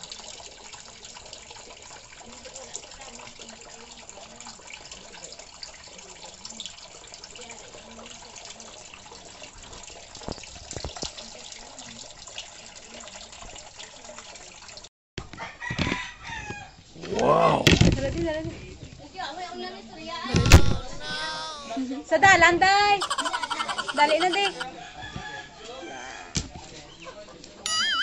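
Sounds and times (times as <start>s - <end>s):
water splashing from hose: 0.0s - 14.9s, 20.3s - 24.7s
call with bending pitch: 27.7s - 28.0s.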